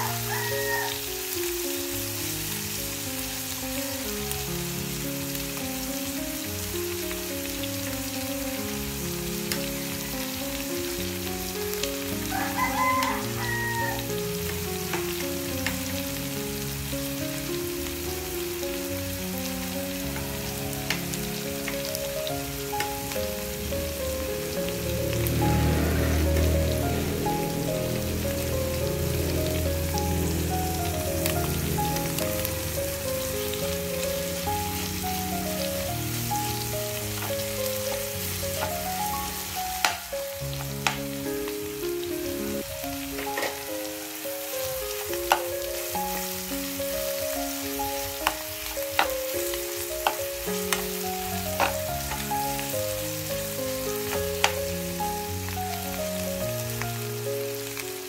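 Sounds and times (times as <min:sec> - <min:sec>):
food sizzling in a frying pan: 0:00.0 - 0:58.0
background music with bass: 0:02.7 - 0:43.7.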